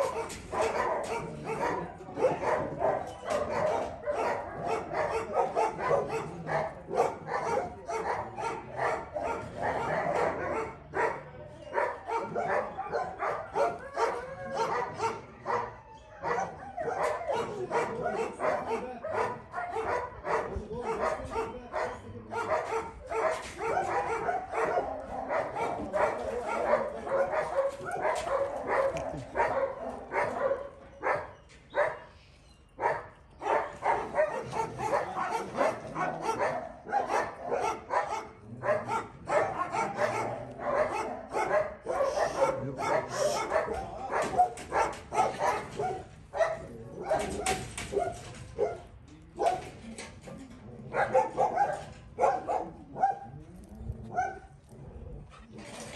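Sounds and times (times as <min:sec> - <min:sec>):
dogs barking: 0:00.0 - 0:49.8, 0:50.7 - 0:55.9.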